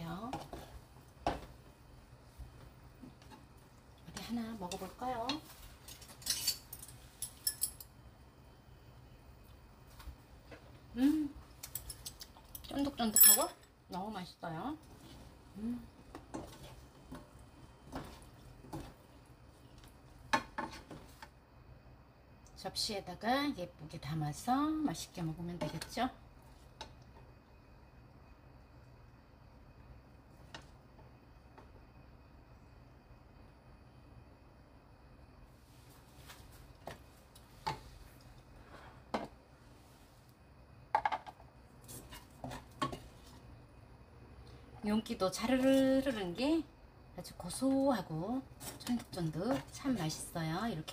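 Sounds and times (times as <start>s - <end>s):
spatula tapping and scraping wok: 16.1s - 19.0s, 20.3s - 21.3s, 40.9s - 43.2s.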